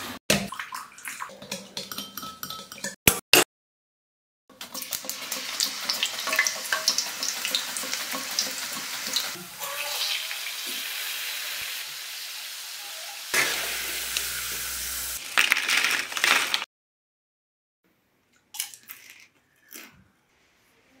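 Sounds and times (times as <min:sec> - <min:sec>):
banana slices sizzling in oil: 0:04.5 - 0:16.6.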